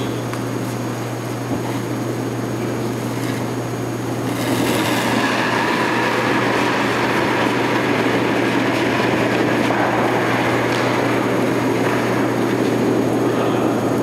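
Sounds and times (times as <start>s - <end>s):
constant low hum: 0.0s - 14.0s
curling stone rolling on ice: 4.2s - 13.2s.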